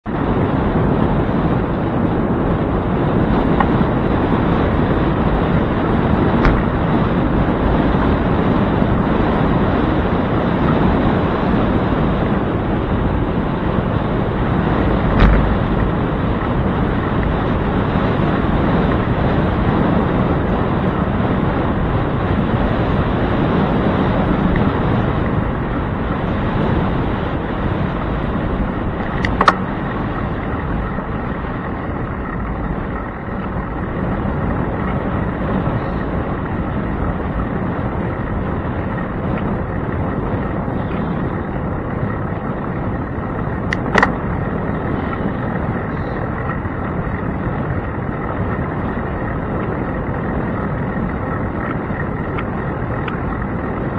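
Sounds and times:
tyre road noise: 0:00.0 - 0:53.9
wind buffeting microphone: 0:00.0 - 0:53.9
short knocks: 0:15.1 - 0:15.7.

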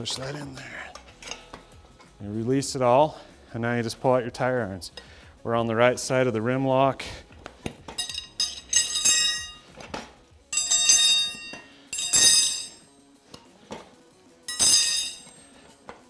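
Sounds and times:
metal tire irons clanging: 0:00.0 - 0:02.2, 0:07.6 - 0:12.8, 0:14.5 - 0:16.0
light metallic clinks: 0:07.9 - 0:09.7, 0:10.5 - 0:12.8, 0:14.5 - 0:15.8.

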